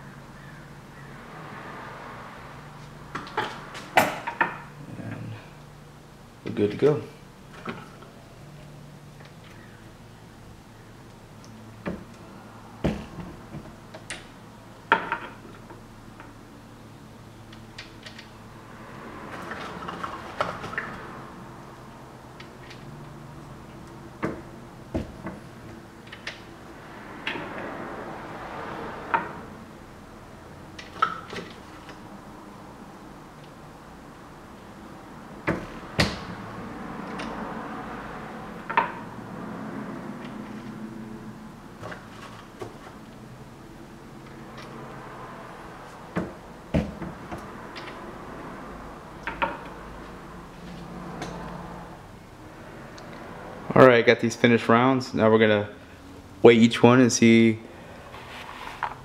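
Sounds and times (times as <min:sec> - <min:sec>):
sliding scrape: 0:58.0 - 0:59.0.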